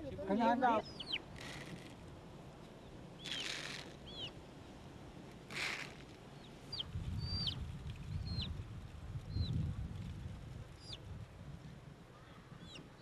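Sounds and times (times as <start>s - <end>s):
bird chirping: 0.7s - 1.5s, 2.8s - 4.4s, 6.4s - 8.6s, 12.2s - 13.0s.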